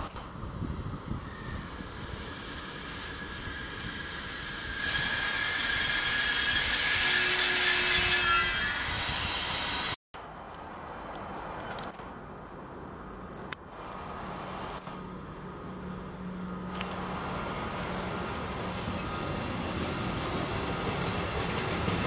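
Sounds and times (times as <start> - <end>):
train rolling noise: 0.0 - 22.0
train wheels squealing on rails: 0.1 - 10.0, 16.1 - 22.0.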